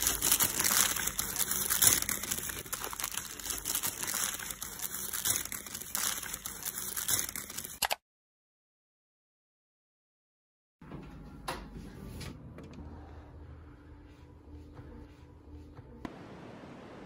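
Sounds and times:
paper packaging rustling: 0:00.0 - 0:08.0.

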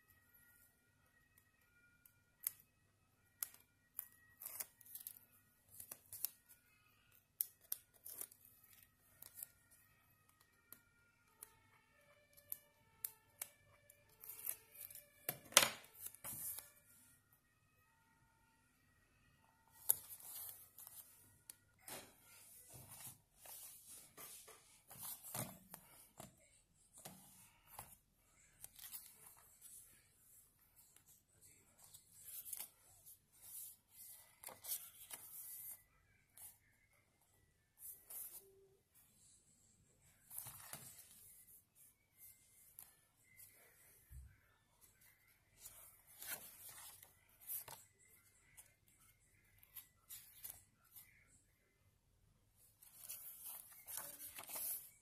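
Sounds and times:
paper pages turning: 0:03.5 - 0:06.5, 0:07.4 - 0:09.6, 0:14.1 - 0:16.7, 0:19.8 - 0:21.2, 0:21.8 - 0:26.3, 0:27.0 - 0:29.8, 0:31.8 - 0:35.8, 0:40.2 - 0:43.8, 0:44.9 - 0:48.7, 0:52.8 - 0:55.0
paper rustling: 0:21.8 - 0:26.3, 0:31.8 - 0:35.8, 0:45.6 - 0:48.7, 0:52.8 - 0:55.0.

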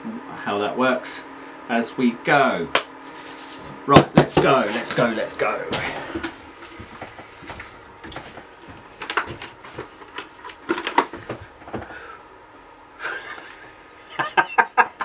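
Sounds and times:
hard plastic cracking and knocking: 0:09.0 - 0:11.9.

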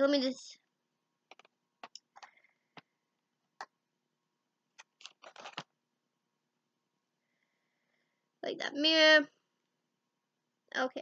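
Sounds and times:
packaging clicks and rustles: 0:04.8 - 0:05.7.

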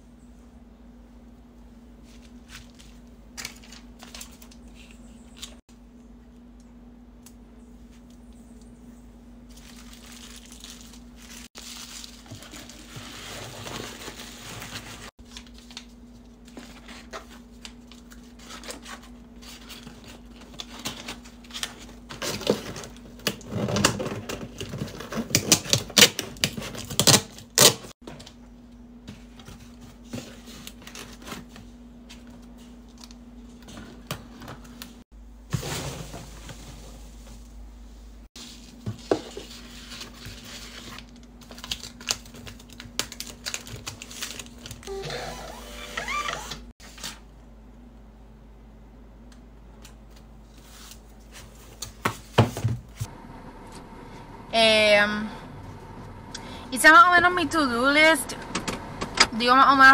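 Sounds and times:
bubble wrap crinkling: 0:09.5 - 0:23.7, 0:38.4 - 0:46.2
packing tape ripping: 0:25.2 - 0:27.9
steady low hum: 0:52.8 - 0:59.9.

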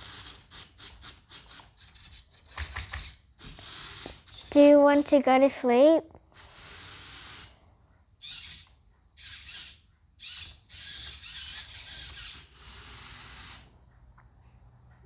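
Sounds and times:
small motors whirring: 0:00.0 - 0:05.0, 0:06.3 - 0:07.6, 0:08.2 - 0:13.8.

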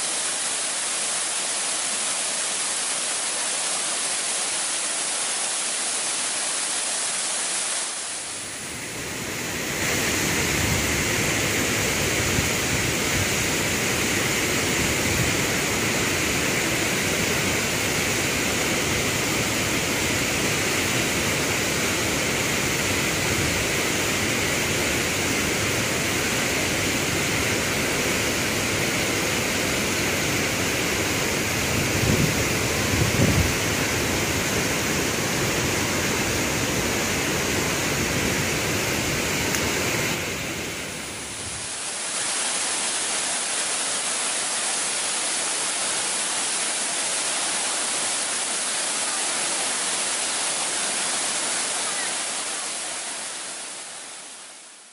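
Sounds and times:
waterfall rushing into pool: 0:00.0 - 0:54.9
low wind buffets: 0:31.6 - 0:33.8.

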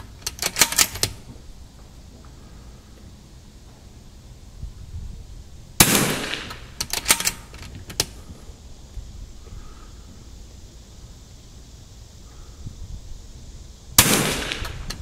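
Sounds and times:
rifle bolt clicking: 0:00.2 - 0:01.2, 0:06.5 - 0:08.1
rifle shot: 0:05.8 - 0:07.5, 0:14.0 - 0:15.0.

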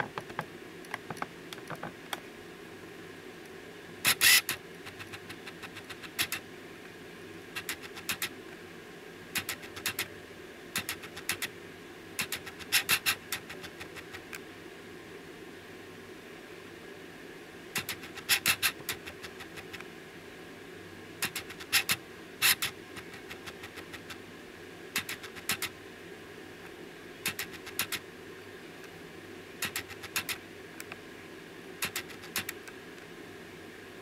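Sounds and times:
faint steady hum: 0:00.0 - 0:34.0
sharp clicks: 0:07.6 - 0:08.3, 0:09.4 - 0:10.1, 0:10.8 - 0:11.5, 0:25.0 - 0:25.7, 0:27.3 - 0:28.0, 0:29.6 - 0:30.4, 0:31.8 - 0:32.8.

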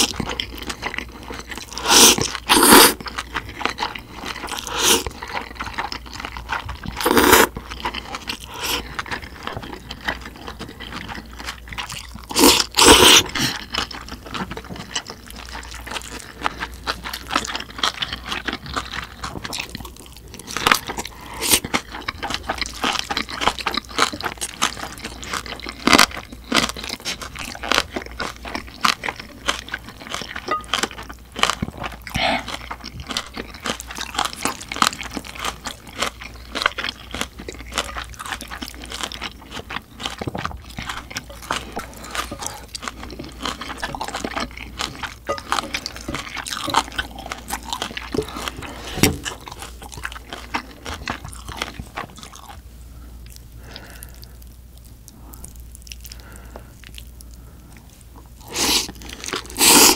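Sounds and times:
crunchy chewing: 0:00.0 - 0:59.9
slurping noodles: 0:01.7 - 0:03.0, 0:04.5 - 0:05.2, 0:07.0 - 0:07.6, 0:12.3 - 0:13.6, 0:58.4 - 0:59.9.

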